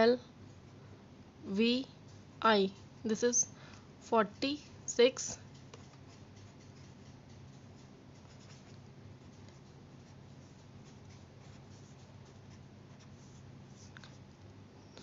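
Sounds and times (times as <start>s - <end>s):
low steady hum: 0.0s - 15.0s
felt-tip pen scratching paper: 5.8s - 13.9s.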